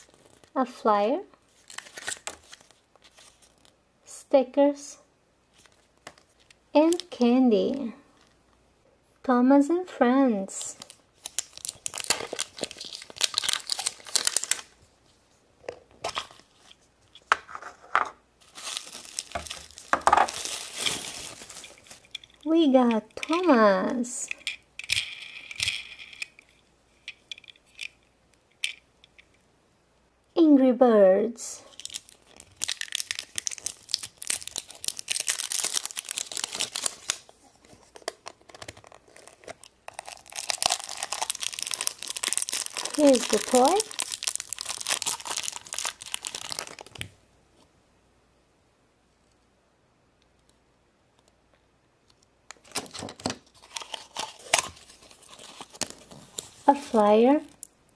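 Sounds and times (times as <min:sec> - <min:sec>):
plastic wrapping crinkling and tearing: 0:01.5 - 0:03.8, 0:10.7 - 0:14.8, 0:18.4 - 0:22.5, 0:31.7 - 0:47.1, 0:52.5 - 0:57.7
plastic egg handled crackles: 0:05.5 - 0:07.3, 0:10.7 - 0:14.8, 0:18.4 - 0:26.5, 0:31.7 - 0:47.1, 0:52.5 - 0:57.7
plastic bag crinkling: 0:10.7 - 0:14.8, 0:18.4 - 0:24.4, 0:31.7 - 0:47.1, 0:52.6 - 0:57.7.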